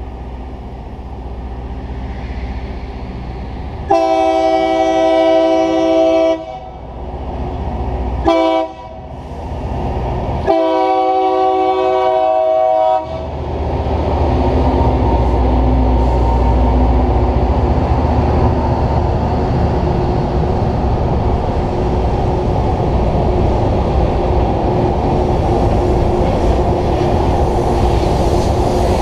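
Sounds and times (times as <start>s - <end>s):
train rumbling past: 0.0s - 29.0s
train air horn blasts: 3.9s - 6.8s, 8.2s - 9.2s, 10.4s - 13.3s.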